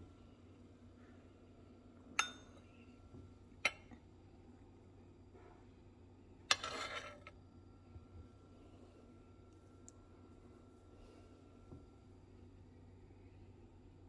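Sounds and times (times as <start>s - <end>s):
spoon clinking against bowl: 2.2s - 2.6s.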